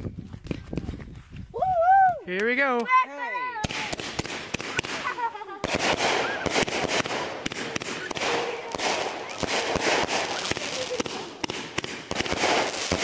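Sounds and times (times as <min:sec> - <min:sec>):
firework bangs: 0:03.6 - 0:13.0
dense firework hiss: 0:03.7 - 0:13.0.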